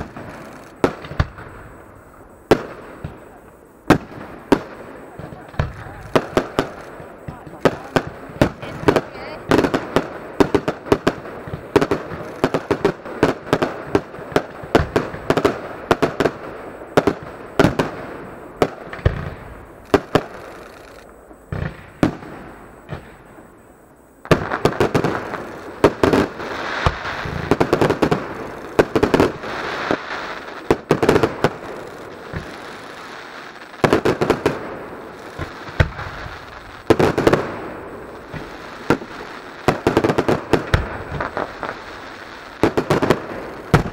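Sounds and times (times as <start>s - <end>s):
firework launch thumps: 38.3s - 38.6s.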